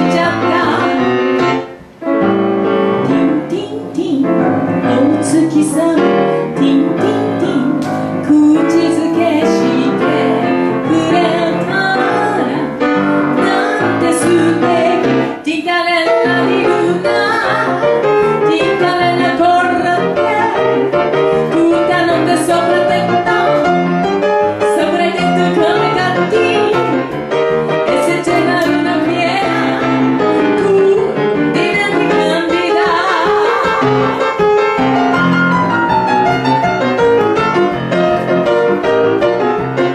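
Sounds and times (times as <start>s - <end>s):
woman singing into a microphone: 0.0s - 1.2s, 3.0s - 23.9s, 24.5s - 34.3s
grand piano: 0.0s - 39.9s.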